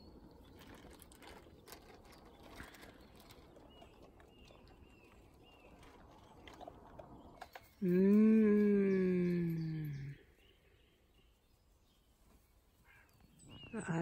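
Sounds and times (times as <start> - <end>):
faint rustling: 0.0 - 7.9.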